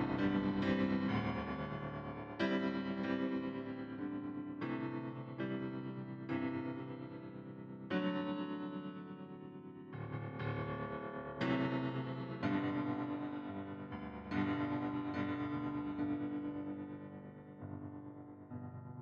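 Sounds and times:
slow piano chords: 0.0s - 19.0s.

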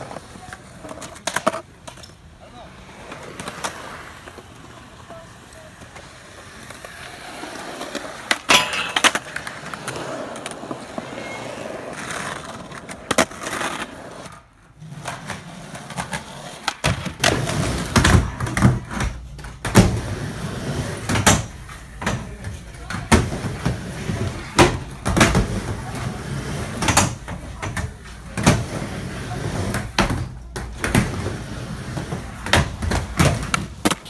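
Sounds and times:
skateboard wheels rolling on concrete: 0.0s - 34.0s
skateboard popping and landing: 5.8s - 14.4s, 29.6s - 34.0s.

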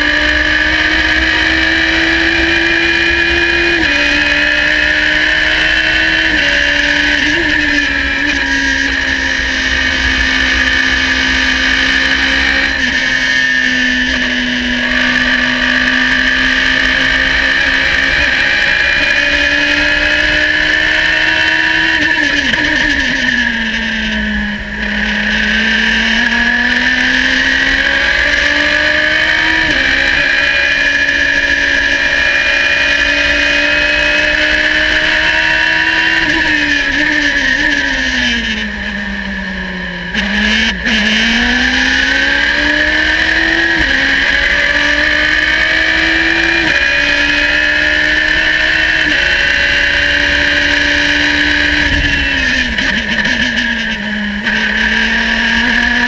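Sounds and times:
race car engine at high revs: 0.0s - 56.0s.

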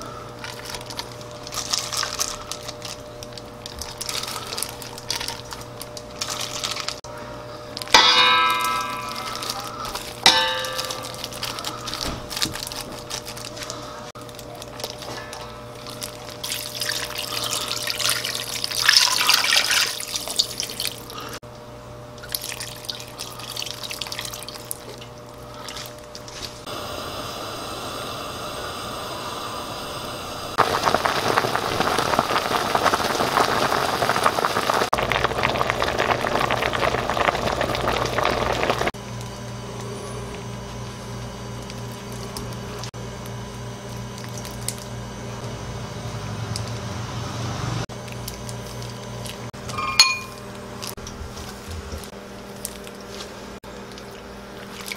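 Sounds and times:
stew bubbling at a boil: 7.8s - 21.4s, 22.2s - 43.0s, 47.9s - 54.9s
water pouring into a pot: 15.8s - 21.4s, 22.2s - 26.0s, 30.6s - 39.0s.

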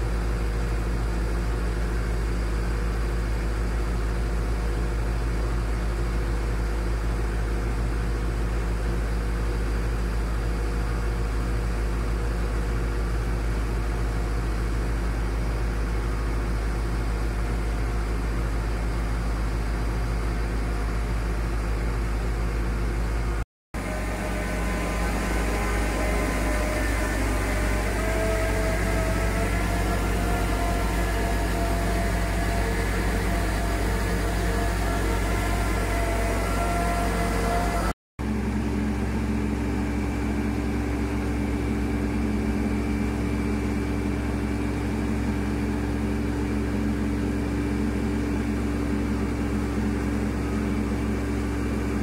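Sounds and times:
machine engine droning: 0.0s - 52.0s
machine whining: 23.8s - 52.0s.

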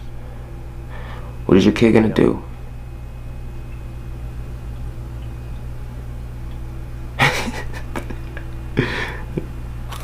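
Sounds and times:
steady low hum: 0.0s - 10.0s
man laughing breathily: 7.2s - 9.5s.

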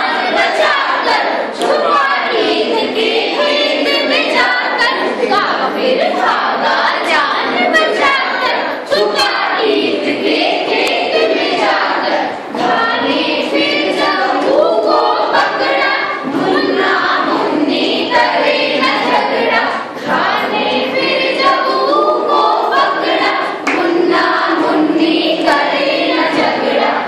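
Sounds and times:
women singing in chorus: 0.0s - 27.0s.

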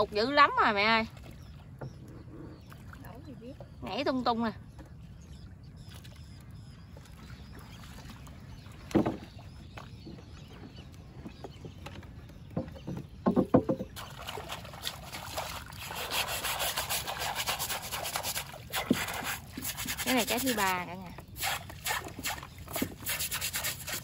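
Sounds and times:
knocks on wooden boat: 8.9s - 9.3s, 11.8s - 14.0s
fish splashing and rustling: 13.6s - 24.0s.

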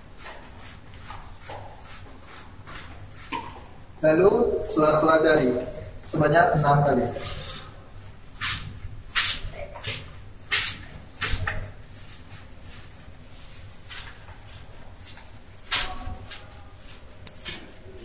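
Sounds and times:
brush scrubbing soapy hands: 0.0s - 3.8s, 8.3s - 18.0s.

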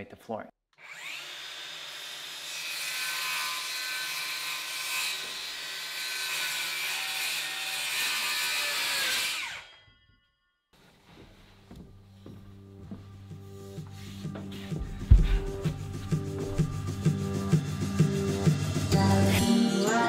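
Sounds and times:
circular saw cutting plank: 0.8s - 9.8s.

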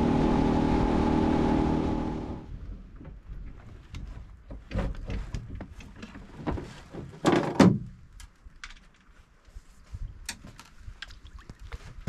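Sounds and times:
low rumble: 0.0s - 3.2s
knocks and thuds of gear on boat: 2.7s - 8.0s.

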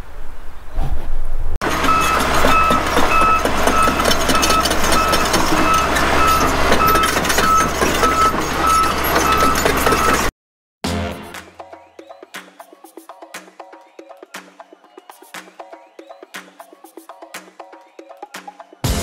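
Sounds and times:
heavy machinery engine hum: 1.6s - 10.3s
reversing alarm beeping: 1.6s - 10.3s.

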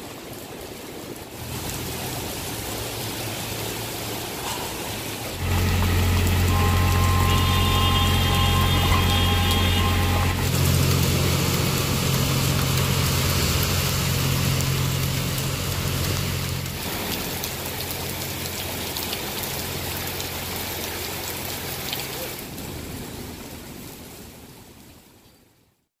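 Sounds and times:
heavy rain pouring: 0.0s - 25.6s
vehicle engine hum: 1.4s - 21.6s
thin high whine: 5.4s - 11.0s.

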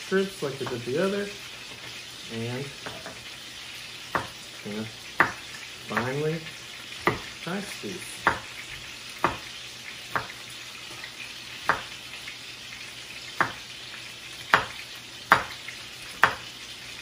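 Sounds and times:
chicken sizzling in a pan: 0.0s - 17.0s
knife chopping on wooden board: 0.6s - 0.9s, 2.8s - 3.2s, 4.1s - 4.4s, 5.2s - 6.2s, 6.9s - 7.4s, 8.2s - 8.6s, 9.2s - 11.0s, 11.6s - 12.0s, 13.4s - 13.6s, 14.4s - 16.5s.

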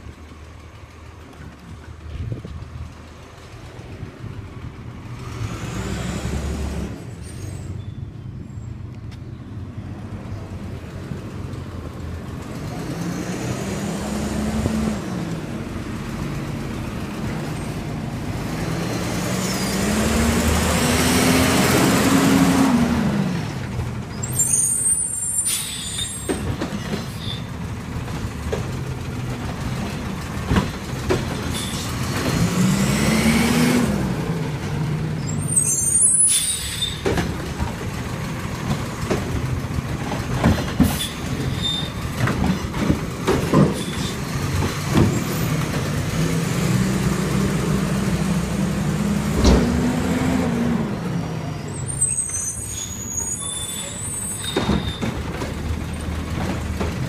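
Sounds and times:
air brakes hissing: 7.1s - 8.7s, 24.2s - 27.5s, 31.5s - 32.0s, 35.2s - 37.1s, 40.8s - 42.0s, 43.6s - 44.3s, 51.6s - 55.2s
garbage truck engine revving: 12.3s - 24.4s, 27.8s - 52.4s.

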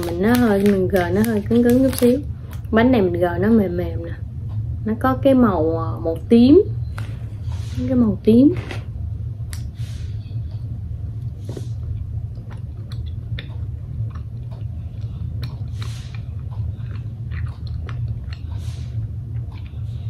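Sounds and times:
steady low hum: 0.0s - 20.0s
person chewing: 11.2s - 20.0s
wet mouth clicks: 11.9s - 19.9s
sniffs: 15.7s - 16.2s.

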